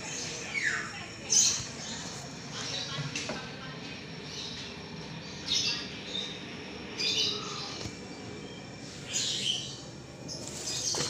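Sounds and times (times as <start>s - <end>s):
high bird chirps: 0.0s - 2.8s
low background hum: 0.0s - 11.0s.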